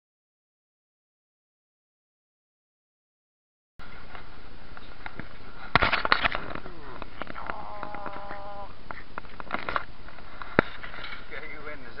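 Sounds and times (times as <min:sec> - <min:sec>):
background hiss: 0:03.8 - 0:12.0
high steady whine: 0:03.8 - 0:12.0.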